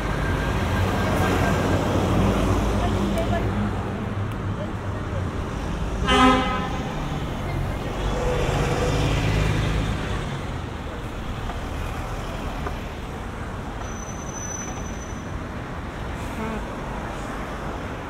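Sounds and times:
heavy vehicle engine: 0:00.0 - 0:18.0
passing cars: 0:00.0 - 0:18.0
short high squeal: 0:13.8 - 0:15.3.

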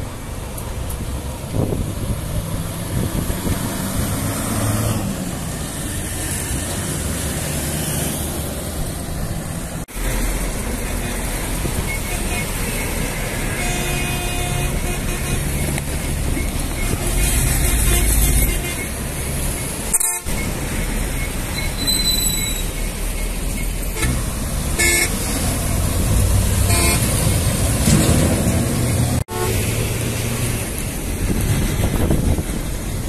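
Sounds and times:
heavy traffic rumbling past: 0:00.0 - 0:33.0
vehicle horn toots: 0:10.8 - 0:15.8, 0:16.8 - 0:19.0, 0:19.9 - 0:20.5, 0:23.9 - 0:24.2, 0:24.8 - 0:25.2, 0:26.6 - 0:27.2, 0:29.3 - 0:29.7.

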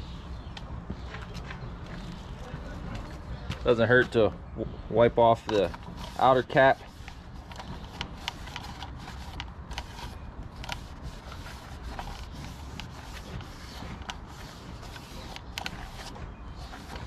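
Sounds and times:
steady low rumble: 0:00.0 - 0:17.0
rag rubbing: 0:05.4 - 0:17.0.

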